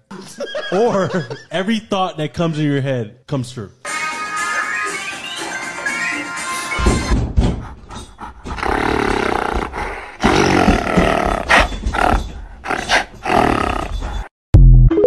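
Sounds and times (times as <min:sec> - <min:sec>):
animal-like roaring and growling: 0:08.5 - 0:14.3.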